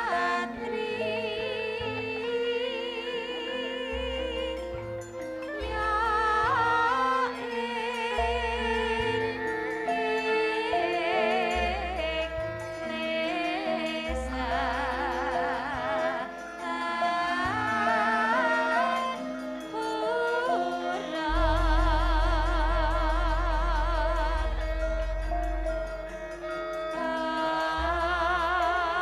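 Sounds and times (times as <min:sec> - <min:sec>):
women singing with vibrato: 0:00.0 - 0:25.6, 0:26.9 - 0:29.0
gamelan metallophone notes: 0:00.0 - 0:29.0
deep sustained bass note: 0:21.3 - 0:26.8.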